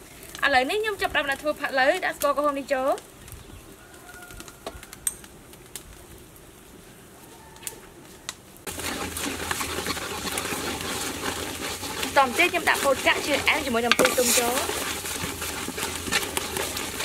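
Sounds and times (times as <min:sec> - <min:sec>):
sugar sizzling and bubbling: 0:00.0 - 0:17.0
ladle stirring in pot: 0:08.7 - 0:17.0.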